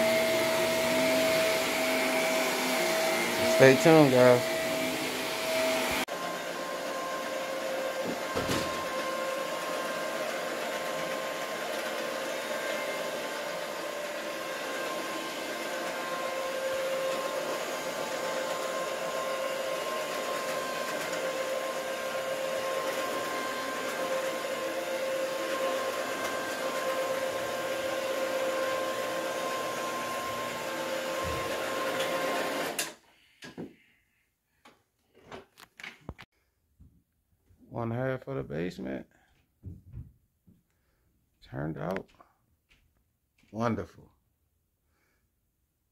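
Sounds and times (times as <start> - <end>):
carpet machine motor whining: 0.0 - 33.0.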